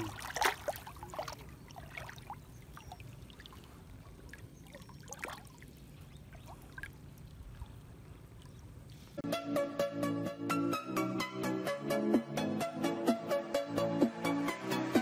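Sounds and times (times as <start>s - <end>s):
water trickling and dripping: 0.0s - 9.0s
small splashes: 0.0s - 9.1s.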